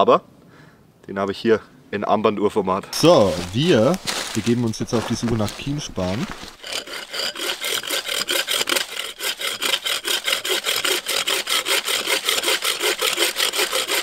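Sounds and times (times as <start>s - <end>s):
hand saw cutting wood: 3.0s - 14.0s.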